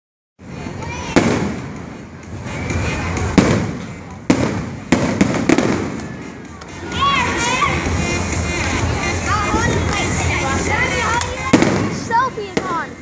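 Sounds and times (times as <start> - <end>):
fireworks bangs: 1.1 - 1.8, 3.2 - 6.3, 11.4 - 12.9.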